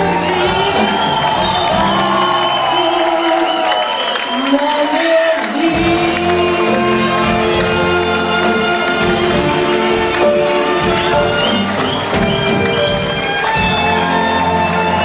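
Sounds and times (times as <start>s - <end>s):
big band brass chords: 5.6s - 15.0s
bass and rhythm section: 5.8s - 15.0s.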